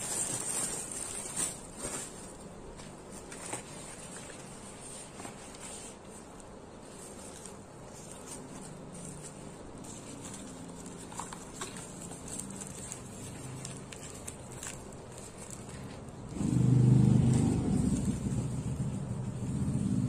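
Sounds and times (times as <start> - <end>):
bubble mailers rustling: 0.0 - 16.3
motor vehicle engine hum: 16.3 - 20.0.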